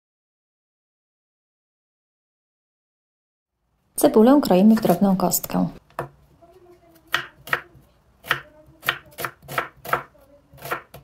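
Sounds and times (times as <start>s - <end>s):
knife chopping on wooden board: 5.9s - 6.2s, 7.0s - 11.0s.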